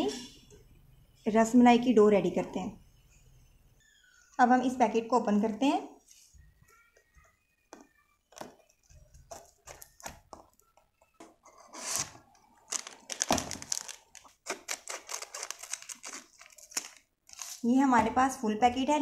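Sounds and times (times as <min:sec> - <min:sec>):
foil packet crinkling: 0:11.7 - 0:17.7.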